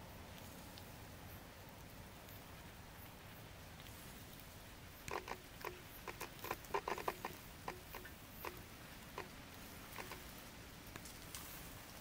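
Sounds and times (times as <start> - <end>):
raindrops tapping: 5.1 - 12.0.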